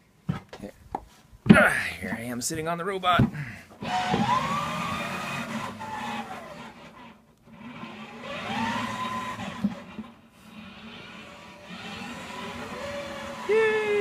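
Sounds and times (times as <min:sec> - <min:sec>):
gear motors whining: 0:03.8 - 0:14.0.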